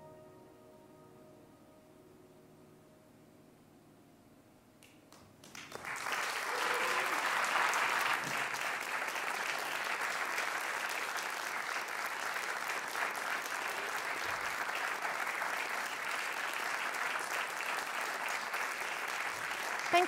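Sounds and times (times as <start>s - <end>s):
audience applauding: 4.8s - 20.0s.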